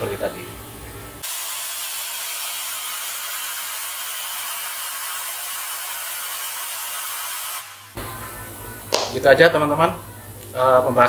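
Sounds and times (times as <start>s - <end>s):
compressed air hissing: 1.2s - 8.0s.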